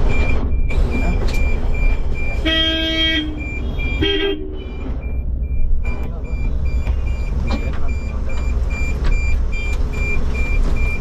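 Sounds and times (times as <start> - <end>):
street traffic rumble: 0.0 - 11.0
vehicle horn toot: 2.4 - 4.8.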